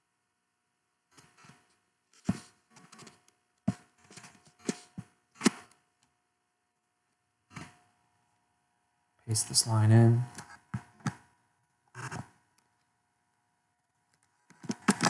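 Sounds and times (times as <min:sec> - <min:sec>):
keyboard typing: 0:14.2 - 0:15.0.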